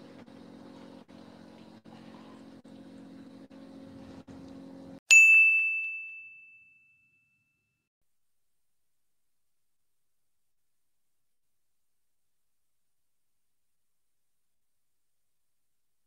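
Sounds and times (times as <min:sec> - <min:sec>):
boat machinery humming: 0:00.0 - 0:05.0
bell-like ding: 0:05.1 - 0:07.8.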